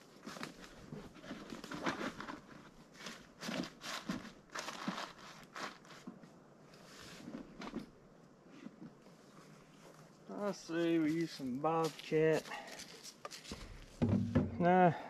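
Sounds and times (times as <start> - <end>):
footsteps crunching leaf litter: 2.9 - 6.0, 10.3 - 14.0.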